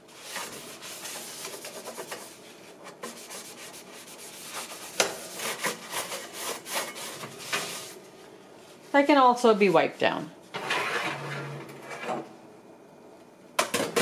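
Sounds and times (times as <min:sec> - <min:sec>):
paper towel wiping metal: 0:00.1 - 0:08.0.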